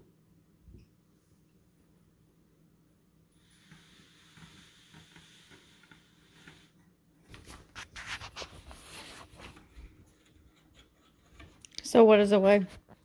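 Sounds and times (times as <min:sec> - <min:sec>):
faint scraping and sliding: 0:03.4 - 0:13.0.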